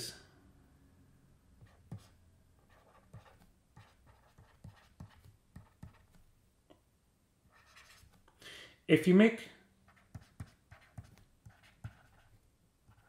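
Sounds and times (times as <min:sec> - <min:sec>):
stylus tapping and scratching: 0:01.6 - 0:06.3, 0:07.5 - 0:08.3, 0:09.9 - 0:13.0.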